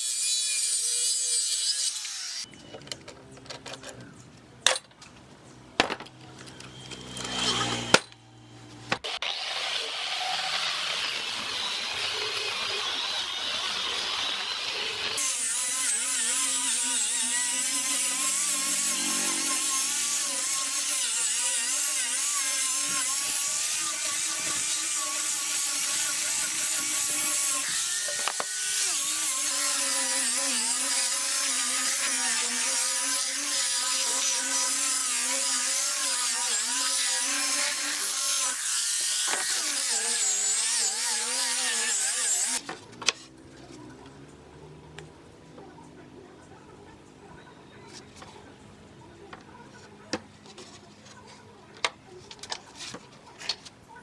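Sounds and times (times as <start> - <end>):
angle grinder sanding wood: 9.1 - 42.6.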